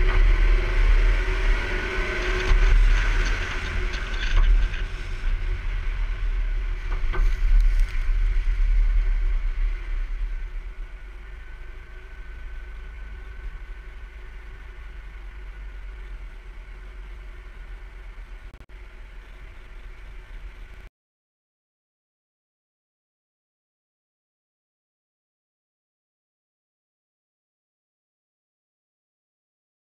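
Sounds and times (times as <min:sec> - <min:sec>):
car road and wind rumble: 0:00.0 - 0:20.9.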